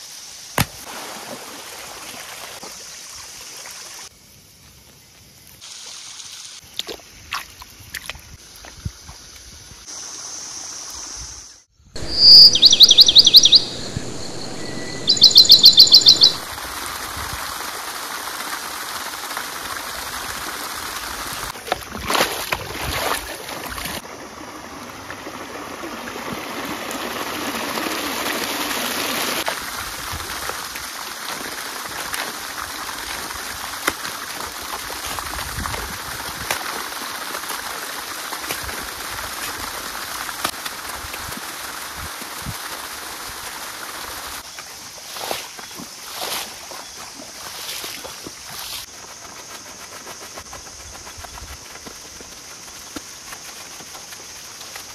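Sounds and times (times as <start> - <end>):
bird trilling: 12.0 - 16.5
trickling water: 13.6 - 48.7.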